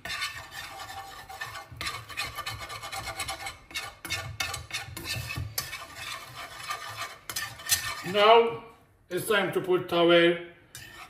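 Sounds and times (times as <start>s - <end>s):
whisk scraping in a pan: 0.0s - 8.4s, 10.7s - 11.0s.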